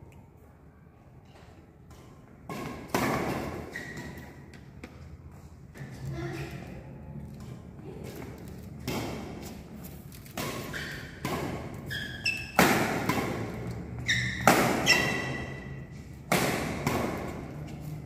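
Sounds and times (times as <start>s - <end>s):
rackets hitting shuttlecock: 1.8s - 5.0s, 7.4s - 18.0s
short high squeaks: 11.9s - 12.6s, 14.0s - 15.7s.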